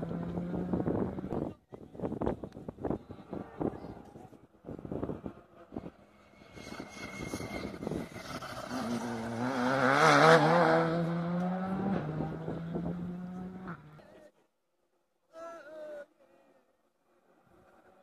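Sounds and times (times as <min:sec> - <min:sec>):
rally car engine at high revs: 0:00.0 - 0:01.5, 0:04.7 - 0:14.0.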